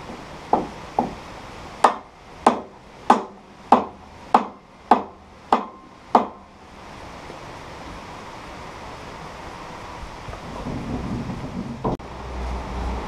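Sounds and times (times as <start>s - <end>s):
steady hiss: 0.0s - 13.0s
hammer striking wooden crate: 0.5s - 1.2s, 1.8s - 6.5s.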